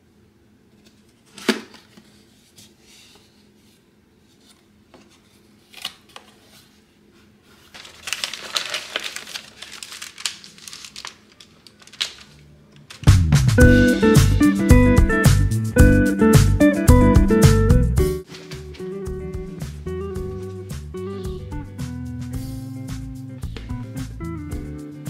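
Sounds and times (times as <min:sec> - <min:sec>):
wrapper crinkling and rustling: 0:07.6 - 0:13.1
music: 0:13.0 - 0:25.0.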